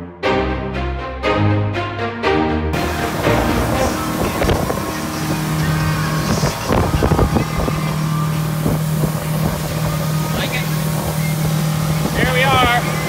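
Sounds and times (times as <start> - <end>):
motorboat engine running: 2.8 - 13.0
rushing water: 2.8 - 13.0
wind on microphone: 2.8 - 13.0.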